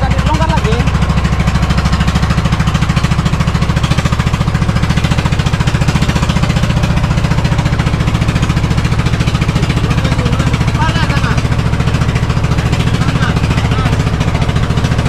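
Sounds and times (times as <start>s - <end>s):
boat engine pulsing: 0.0s - 15.0s.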